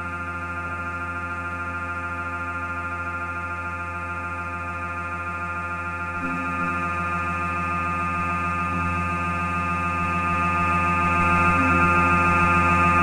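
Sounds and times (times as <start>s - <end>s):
electronic drone music: 6.1s - 13.0s.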